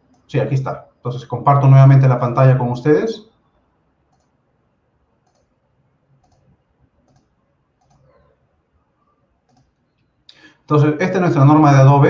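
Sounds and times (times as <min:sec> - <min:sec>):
computer mouse clicks: 0:00.0 - 0:00.3, 0:04.1 - 0:04.4, 0:05.2 - 0:05.6, 0:06.2 - 0:08.4, 0:09.4 - 0:10.2.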